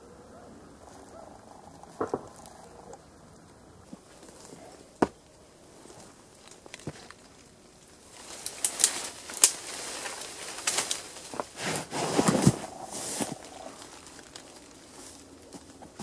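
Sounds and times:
branches rustling and snapping: 0.8 - 16.0
rubber boots scraping on bark: 8.2 - 16.0
body sliding down trunk: 11.3 - 13.4.

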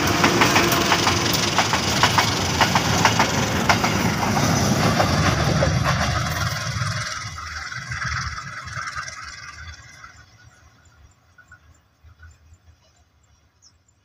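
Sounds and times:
train wheels rolling on track: 0.0 - 14.0.

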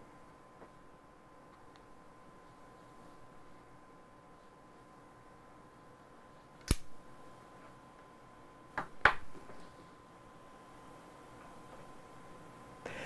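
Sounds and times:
faint room noise: 0.0 - 13.0.

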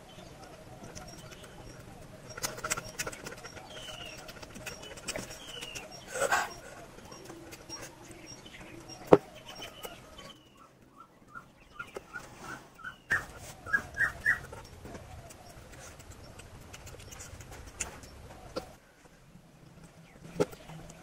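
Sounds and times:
chewing and wet mouth smacks: 15.3 - 18.7.

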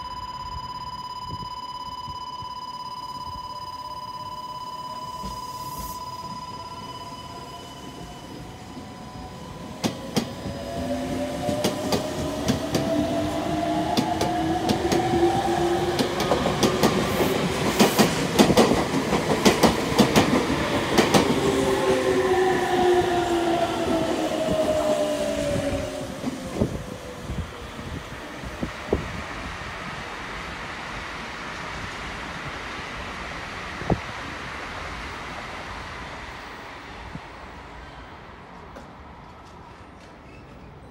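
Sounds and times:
train wheels clacking on rail joints: 15.9 - 22.0.

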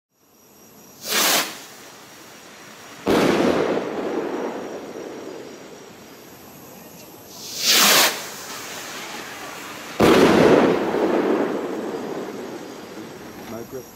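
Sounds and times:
rocket launch whoosh: 1.0 - 1.8, 7.3 - 13.2
firework bang echoing: 1.0 - 1.9, 3.0 - 6.3, 7.3 - 13.8.

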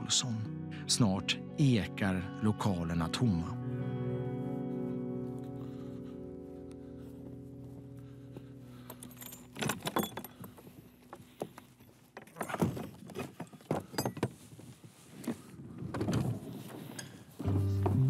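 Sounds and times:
padlock and chain rattling: 8.7 - 14.4.

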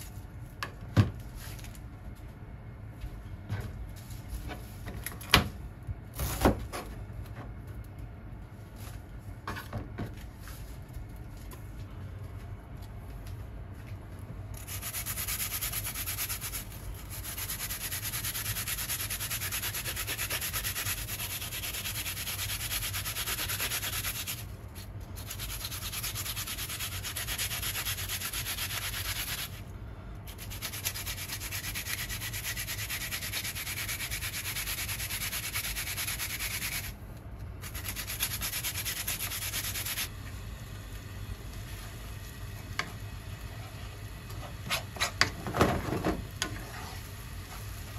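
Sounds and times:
onion rasping on plastic grater: 14.6 - 24.5, 25.2 - 29.6, 30.3 - 36.9, 37.6 - 40.1.

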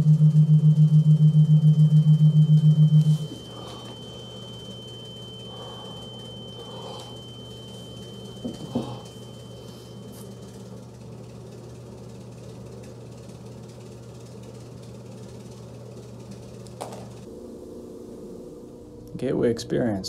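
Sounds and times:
thin high tone: 0.0 - 10.7
low hum: 0.0 - 12.6, 15.3 - 20.0.

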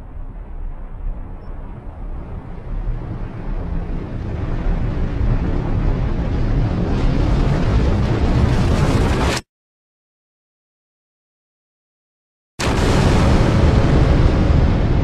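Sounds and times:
deep rushing rumble: 0.0 - 9.2, 12.6 - 15.0.

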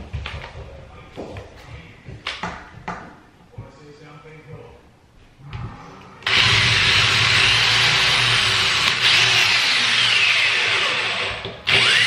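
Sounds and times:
electric drill boring: 6.2 - 12.0.

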